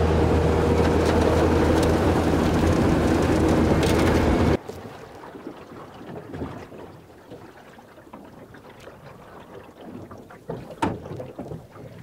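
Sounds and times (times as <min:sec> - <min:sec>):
light wind: 0:00.0 - 0:08.6
water: 0:00.0 - 0:12.0.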